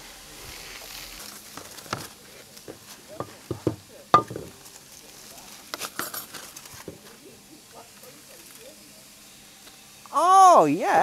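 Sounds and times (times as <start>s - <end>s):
aluminium foil crinkling: 0.4s - 3.5s, 4.5s - 7.2s
clinks and knocks on pot: 3.2s - 4.6s.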